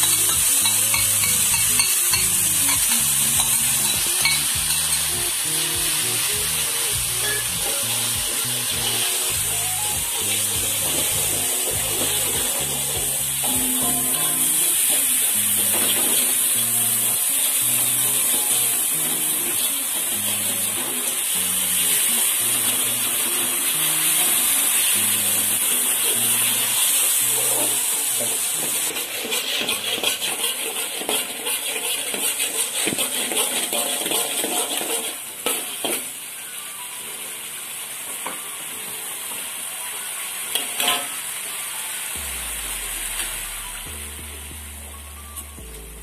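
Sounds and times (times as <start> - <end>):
spatula scraping a wok: 0.0 - 5.4, 25.3 - 36.1
background music: 0.0 - 31.3, 40.3 - 46.0
paste sizzling in a wok: 0.0 - 45.1.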